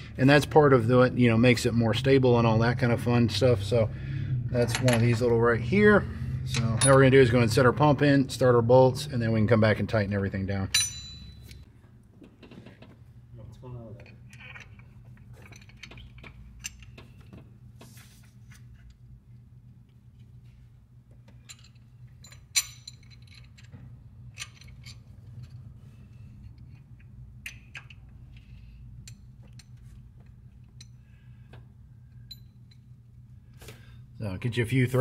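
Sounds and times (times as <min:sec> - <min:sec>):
steady low hum: 0:00.0 - 0:35.0
metal clinks and taps: 0:10.7 - 0:11.7, 0:14.0 - 0:17.5, 0:32.0 - 0:32.9.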